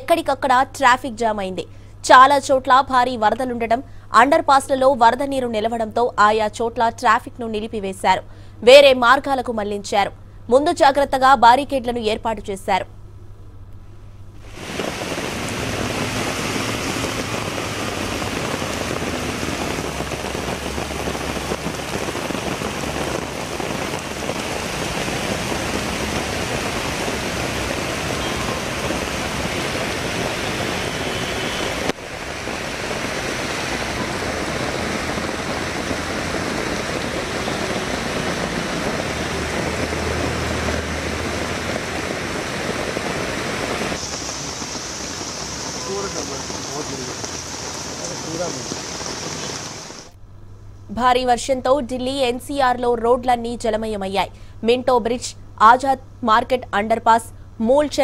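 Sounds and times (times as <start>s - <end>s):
heavy rain falling: 14.4s - 50.2s.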